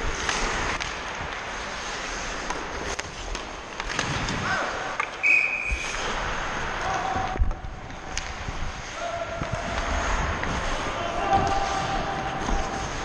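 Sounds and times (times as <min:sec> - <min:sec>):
skates scraping on ice: 0:00.0 - 0:13.0
hockey stick clicks on puck: 0:00.2 - 0:01.5, 0:02.4 - 0:04.4, 0:06.9 - 0:08.5.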